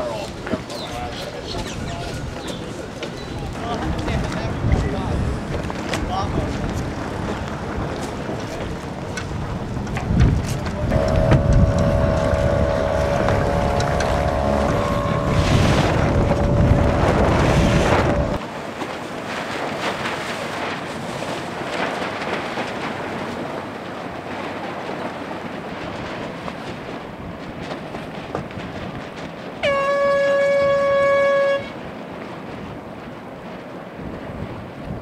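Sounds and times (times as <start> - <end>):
wind and water: 0.0 - 35.0
wind buffeting microphone: 0.0 - 35.0
steady droning tone: 10.6 - 18.4.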